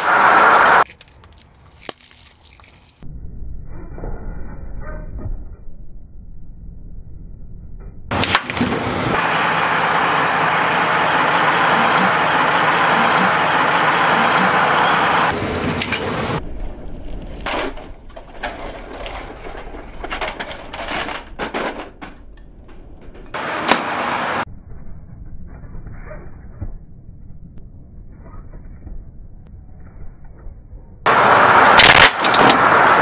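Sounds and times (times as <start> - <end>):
plastic toys cracking: 0.8 - 3.0, 31.8 - 32.7.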